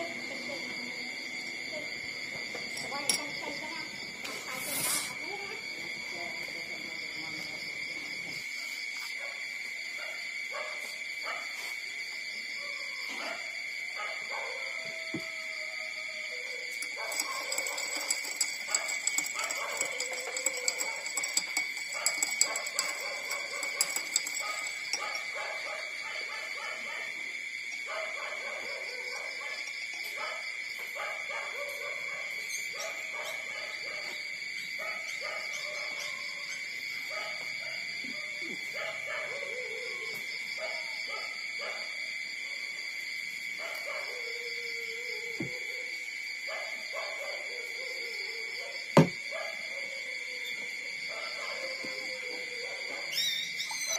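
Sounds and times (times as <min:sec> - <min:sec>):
puppies whimpering and squeaking: 0:53.1 - 0:53.9.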